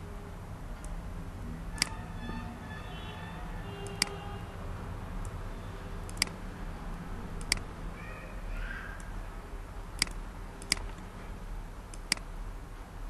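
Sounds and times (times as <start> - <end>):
low electrical hum: 0.0 - 13.0
computer mouse clicking: 6.0 - 6.4, 7.4 - 7.7, 10.0 - 11.1, 11.9 - 12.3.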